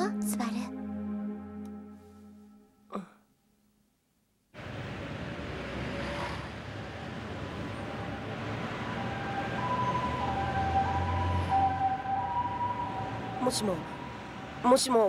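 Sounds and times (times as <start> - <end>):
street traffic din: 4.6 - 15.0
high alternating two-tone sound: 8.3 - 15.0.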